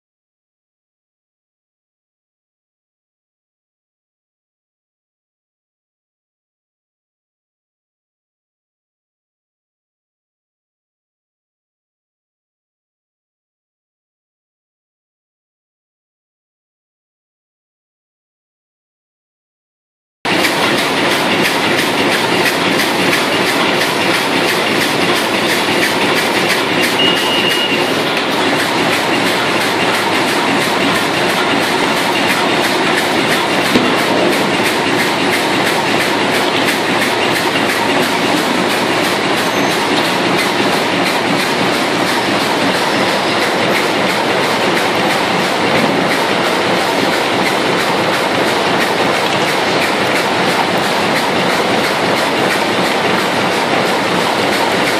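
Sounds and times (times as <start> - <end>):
machine rapid mechanical clatter: 20.3 - 54.9.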